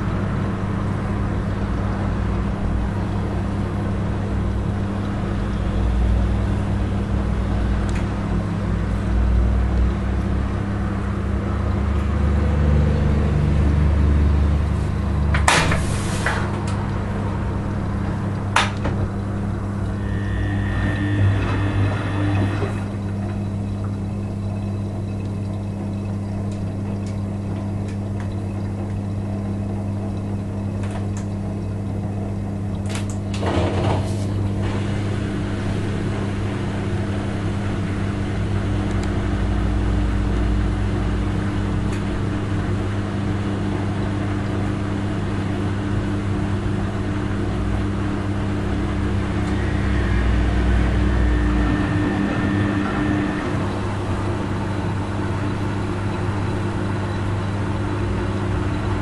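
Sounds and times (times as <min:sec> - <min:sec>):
washing machine humming: 0:00.0 - 0:59.0
deep rumble: 0:10.6 - 0:25.2, 0:46.8 - 0:59.0
washing machine clatter: 0:15.1 - 0:20.0, 0:22.3 - 0:36.4.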